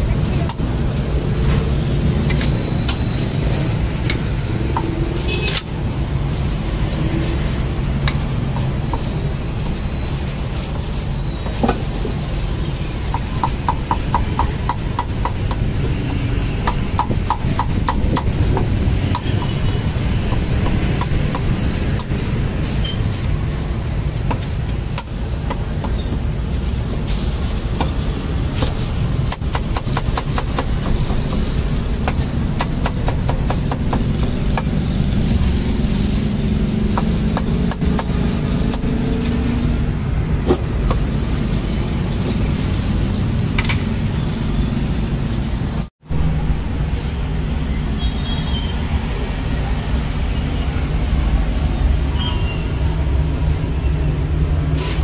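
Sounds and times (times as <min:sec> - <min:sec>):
street traffic rumble: 0:00.0 - 0:55.0.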